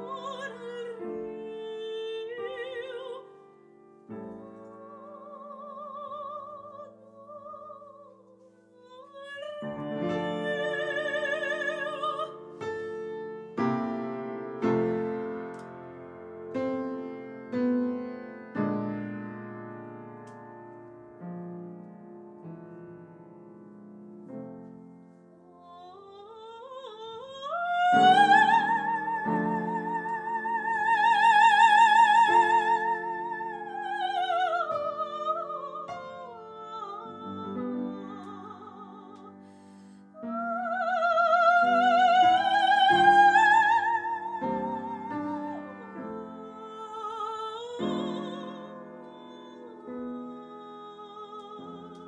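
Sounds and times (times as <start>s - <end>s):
woman singing opera: 0.0s - 3.5s, 4.1s - 13.0s, 25.4s - 52.0s
upright piano: 0.0s - 25.6s, 27.1s - 52.0s.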